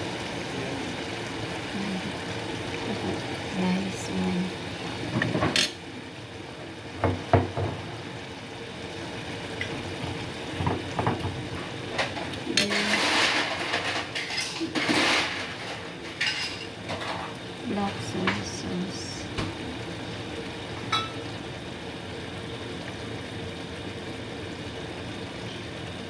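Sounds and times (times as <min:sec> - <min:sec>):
spoon bottles and pan clinking: 0:12.0 - 0:17.3, 0:20.9 - 0:21.2.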